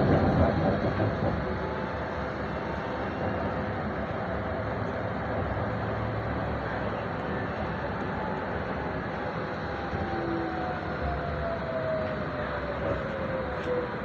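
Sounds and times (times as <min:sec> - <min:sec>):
tram wheels rumbling on rails: 0:00.0 - 0:14.0.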